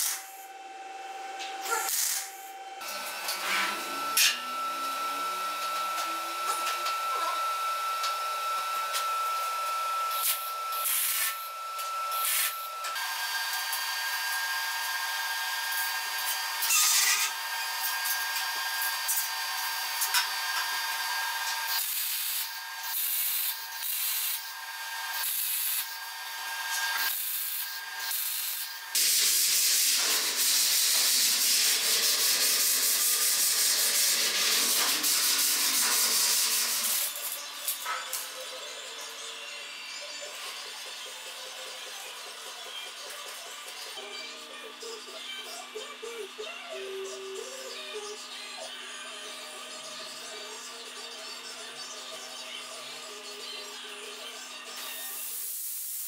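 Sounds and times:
arc welding crackling: 0.0s - 0.4s, 1.6s - 3.5s, 10.1s - 38.3s, 54.8s - 56.0s.

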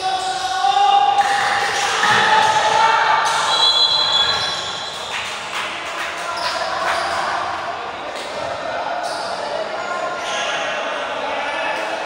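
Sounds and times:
players' voices and shouts: 0.0s - 12.0s
shoe squeaks: 3.5s - 5.0s, 9.0s - 10.6s.

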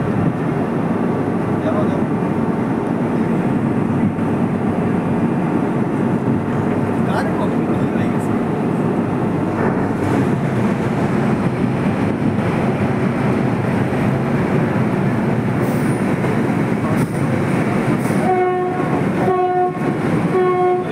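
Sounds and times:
boat engine drone: 0.0s - 20.9s
boat horn blasts: 18.2s - 20.9s.

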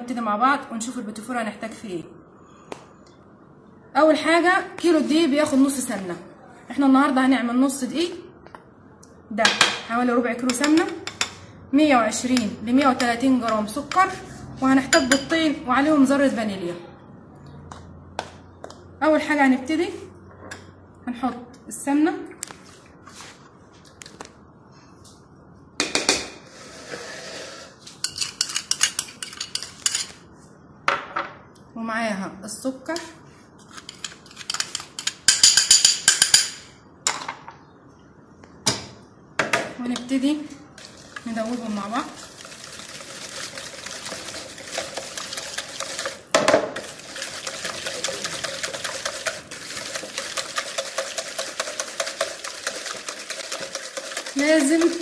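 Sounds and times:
beating mixture in a bowl: 40.8s - 55.0s.

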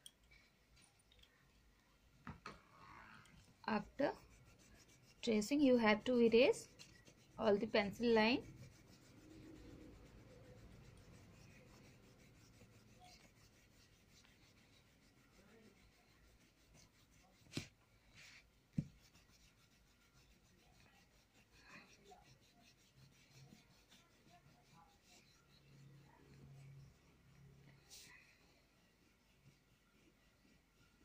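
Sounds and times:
eraser rubbing on paper: 3.5s - 31.0s.

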